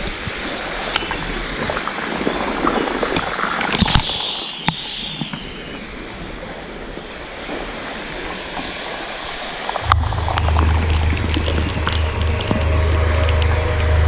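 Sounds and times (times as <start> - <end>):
wind buffeting microphone: 0.0 - 14.0
waterfall rushing: 8.8 - 14.0
water drops ticking: 9.8 - 13.6.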